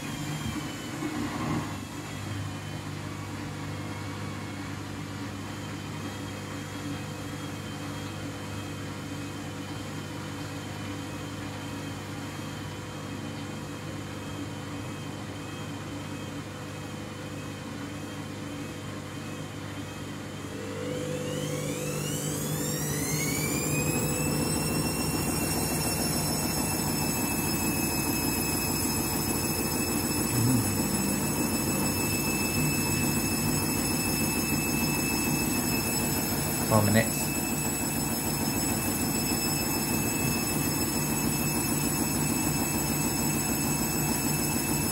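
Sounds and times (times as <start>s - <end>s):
washing machine spinning: 0.0s - 44.9s
rising motor whine: 20.4s - 38.8s.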